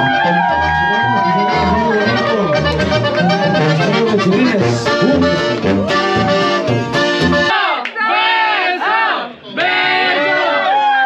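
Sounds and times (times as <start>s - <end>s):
acoustic guitar: 0.0s - 7.5s
pulsing bass line: 0.0s - 7.5s
live band music: 0.0s - 7.6s
crowd shouting and cheering: 0.0s - 11.0s.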